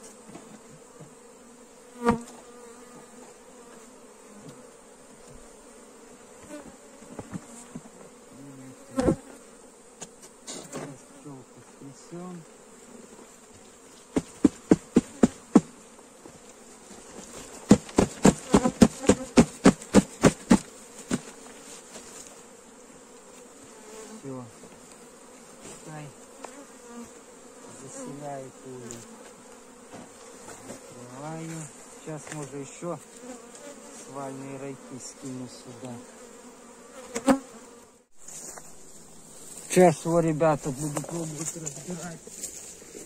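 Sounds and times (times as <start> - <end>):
bee swarm humming: 0.0 - 43.0
knocks on cardboard box: 17.7 - 21.3.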